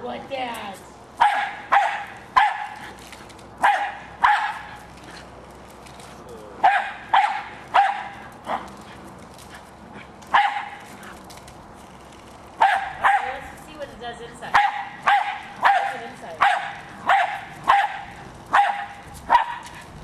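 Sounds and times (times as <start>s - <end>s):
dog barking sharply: 1.2s - 2.8s, 3.6s - 4.7s, 6.6s - 8.6s, 10.3s - 10.8s, 12.6s - 13.3s, 14.5s - 19.8s.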